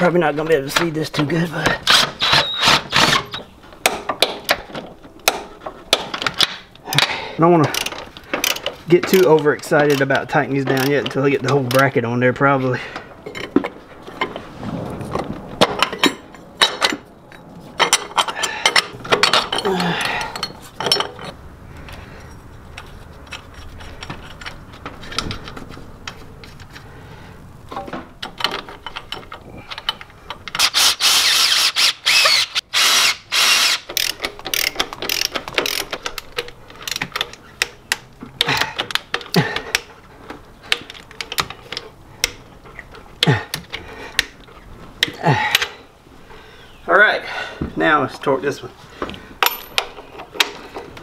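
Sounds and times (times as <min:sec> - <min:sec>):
socket ratchet clicking: 0:30.5 - 0:37.8
cordless power driver spinning: 0:30.6 - 0:35.8.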